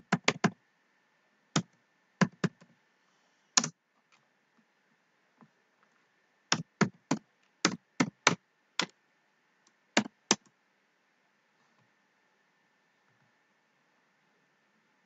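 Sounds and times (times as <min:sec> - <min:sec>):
keyboard key presses: 0:00.0 - 0:00.6, 0:01.6 - 0:02.7, 0:03.6 - 0:03.8.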